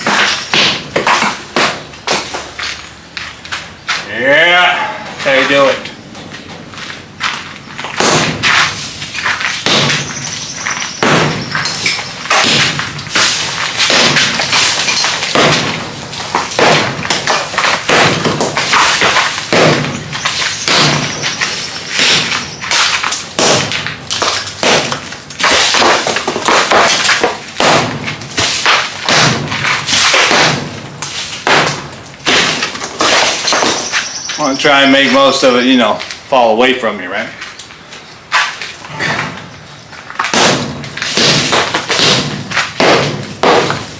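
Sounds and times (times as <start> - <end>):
wall pieces breaking away: 7.8 - 34.1, 40.0 - 43.9.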